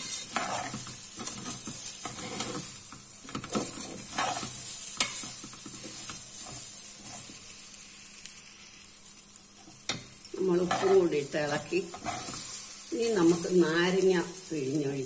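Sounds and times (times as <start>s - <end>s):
metal spoon scraping pan: 0.0s - 7.3s, 10.6s - 13.5s
food sizzling in oil: 0.0s - 15.0s.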